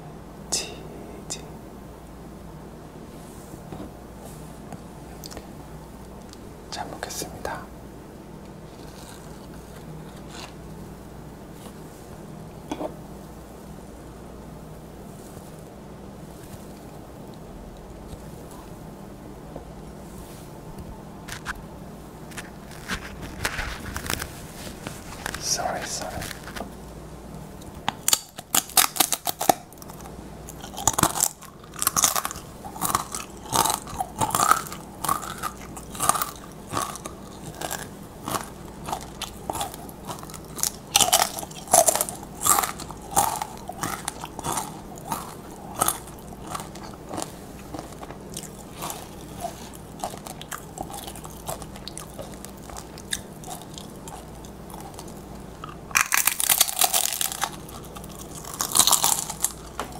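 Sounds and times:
tortilla chips crunching: 0:08.6 - 0:10.7, 0:22.3 - 0:26.8, 0:27.9 - 0:59.9.

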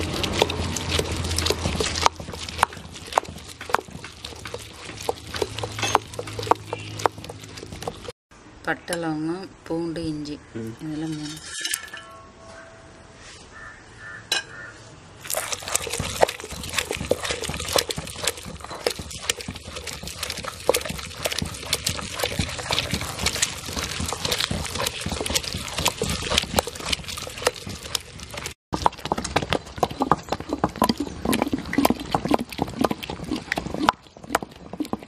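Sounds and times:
pestle grinding in stone mortar: 0:00.0 - 0:08.2, 0:15.2 - 0:35.0.

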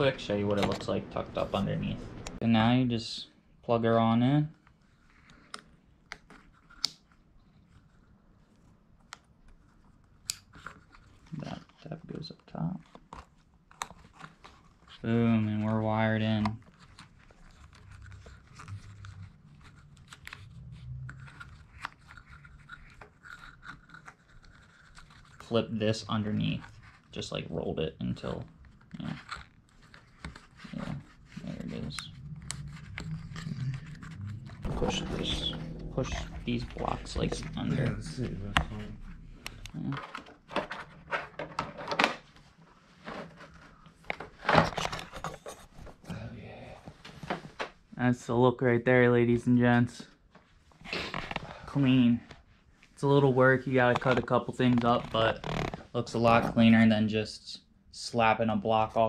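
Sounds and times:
plastic scrape: 0:15.6 - 0:45.9
low hum: 0:17.6 - 0:23.0, 0:30.7 - 0:41.4
plastic clacks and knocks: 0:39.8 - 0:42.3.

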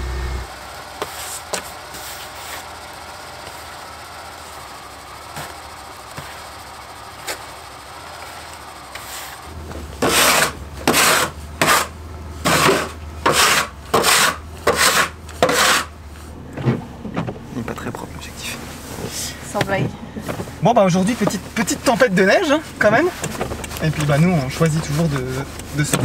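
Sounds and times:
low steady hum: 0:00.0 - 0:26.0
rasping scraping strokes: 0:01.0 - 0:02.8, 0:08.2 - 0:16.8, 0:18.2 - 0:26.0.

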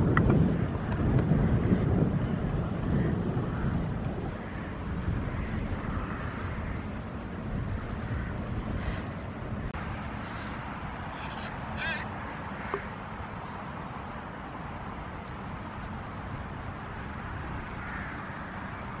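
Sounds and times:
wind on microphone: 0:00.0 - 0:13.5
crow cawing: 0:04.4 - 0:06.9, 0:08.0 - 0:09.2, 0:11.1 - 0:12.9, 0:17.7 - 0:18.4.

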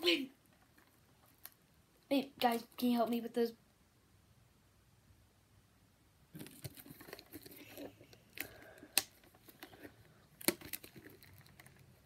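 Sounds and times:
shrink wrap crinkling: 0:06.4 - 0:12.0.

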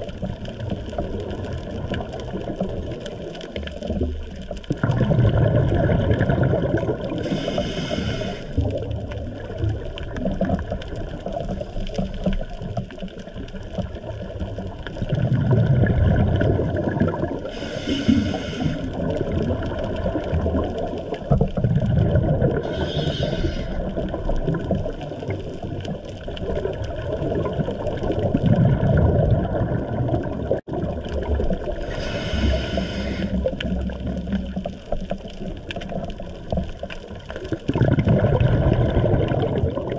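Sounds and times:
underwater exhaled bubbles: 0:00.0 - 0:39.9
regulator inhale hiss: 0:07.2 - 0:08.6, 0:17.4 - 0:19.0, 0:22.6 - 0:23.9, 0:31.8 - 0:33.5.

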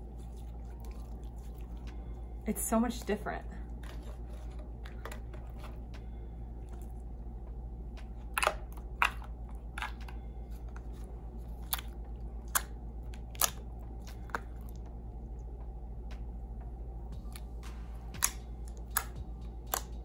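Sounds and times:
slime squelching: 0:00.0 - 0:03.2, 0:08.1 - 0:14.9
steady low hum: 0:00.0 - 0:20.0.

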